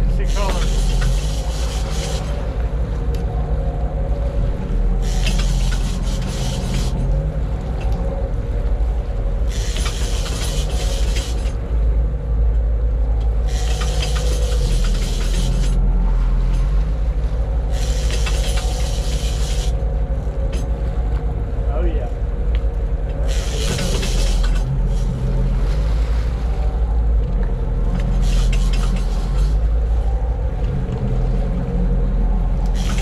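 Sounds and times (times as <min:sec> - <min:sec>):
boat engine rumbling: 0:00.0 - 0:33.0.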